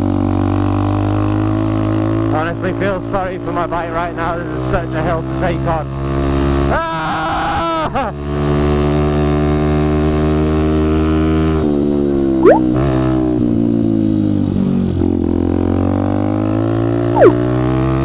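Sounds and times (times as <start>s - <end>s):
whistle-like sweeps: 12.4s - 12.7s, 17.2s - 17.4s
motorcycle engine climbing hill: 15.2s - 18.0s.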